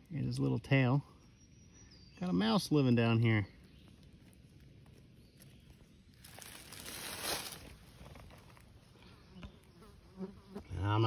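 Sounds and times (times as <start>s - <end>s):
dry leaves rustling: 3.6s - 8.8s.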